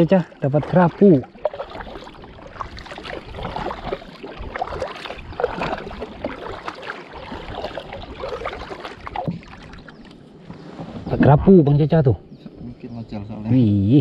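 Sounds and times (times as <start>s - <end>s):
kayak paddle splashing in water: 0.0s - 10.7s.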